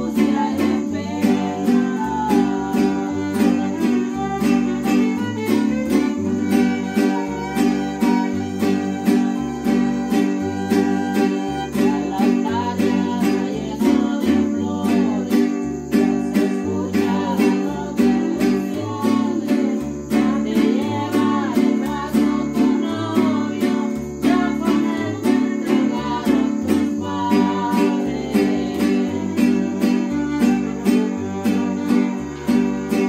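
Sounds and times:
strummed guitars: 0.0s - 33.0s
violin melody: 1.4s - 13.1s, 27.0s - 33.0s.

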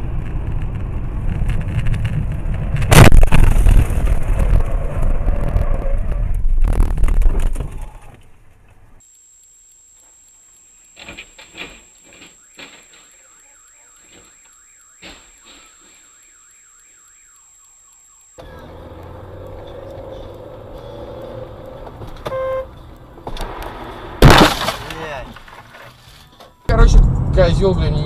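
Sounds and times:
moving car road noise: 0.0s - 9.0s, 18.4s - 24.2s
collision crash: 2.8s - 5.2s, 23.3s - 25.7s
car alarm warbling: 11.8s - 23.0s
short beep: 12.2s - 18.8s, 22.2s - 22.7s.

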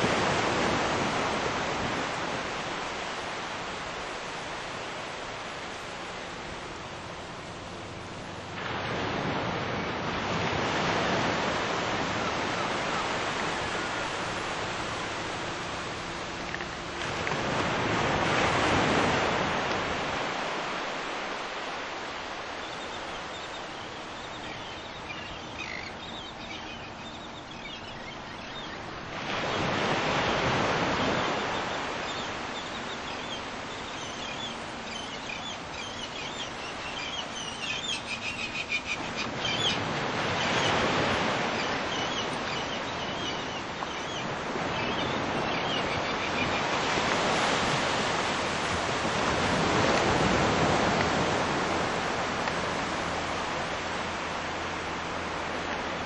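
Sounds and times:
waves washing in: 0.0s - 56.0s
small birds chirping: 22.6s - 28.8s, 31.4s - 46.8s.

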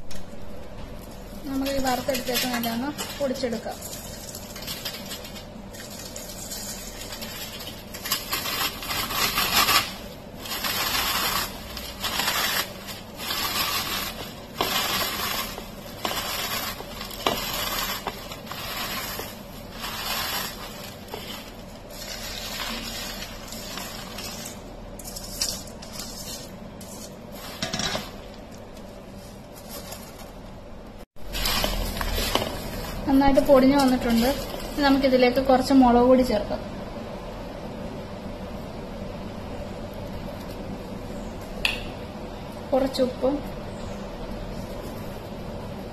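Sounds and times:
crisp snack crushed on metal plate: 2.0s - 28.3s.

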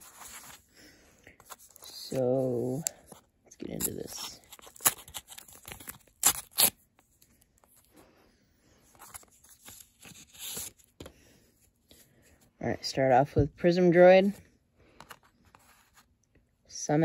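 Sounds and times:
paper wrapper tearing and crinkling: 3.6s - 6.8s.

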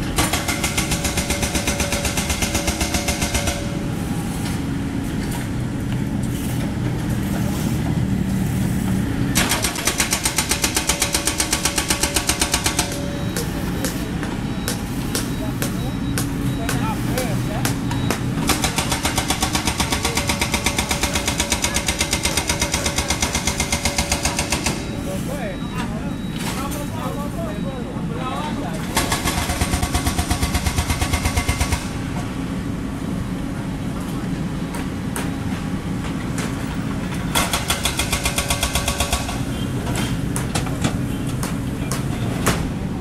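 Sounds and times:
excavator diesel engine running: 0.0s - 43.0s
machine hammering rapidly: 0.2s - 3.7s, 9.4s - 14.0s, 17.6s - 24.8s, 29.0s - 31.9s, 37.3s - 39.4s.

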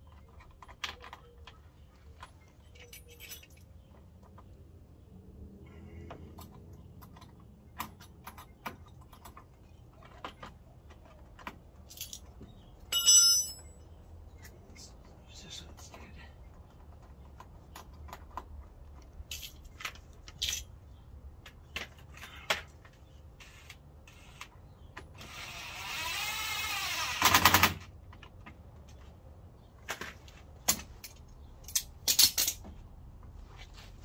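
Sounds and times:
tools and hardware clinking: 0.0s - 4.5s, 6.2s - 14.0s, 19.0s - 20.8s, 30.6s - 32.8s.

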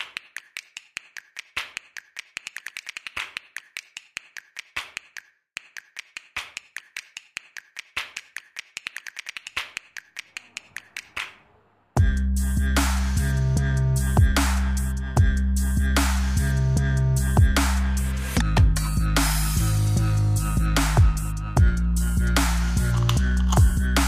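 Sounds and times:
sharp dry clicks: 0.0s - 11.4s, 22.4s - 24.0s.

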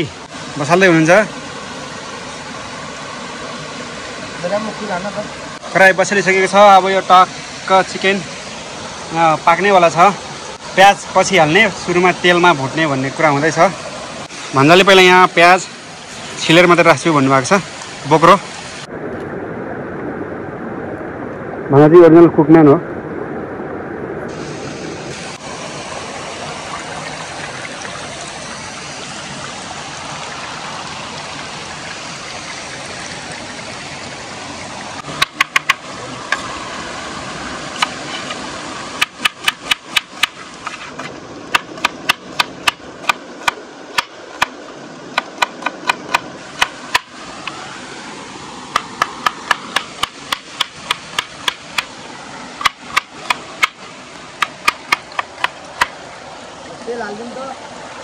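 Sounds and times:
stream and small waterfall rushing: 0.0s - 58.0s
knife chopping on wooden board: 39.0s - 47.1s, 48.8s - 51.9s, 54.4s - 56.0s.

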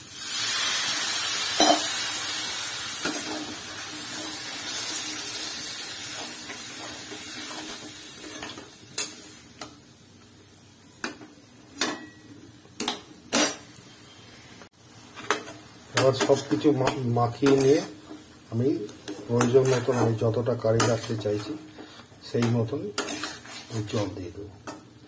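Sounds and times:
water sizzling in hot pan: 0.0s - 10.9s.

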